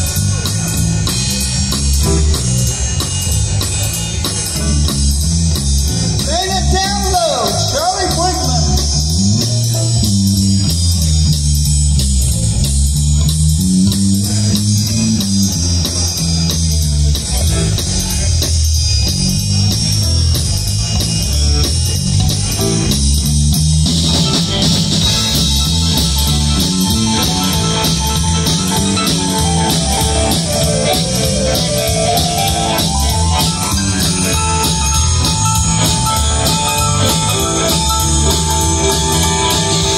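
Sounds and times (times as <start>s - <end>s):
bass guitar: 0.0s - 39.9s
drum kit beat: 0.0s - 39.9s
electric guitars: 0.0s - 39.9s
rising melodic line: 19.7s - 39.9s.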